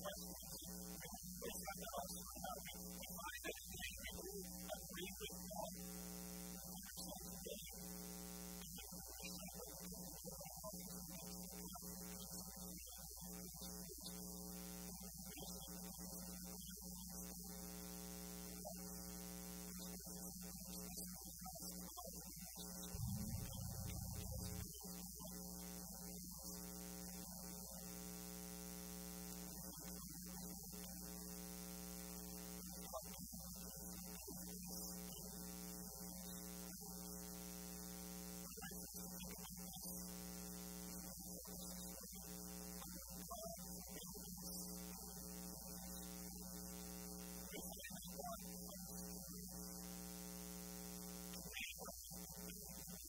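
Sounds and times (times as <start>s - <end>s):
electrical hum: 22.6s - 28.2s
brief low rumble: 22.9s - 24.7s.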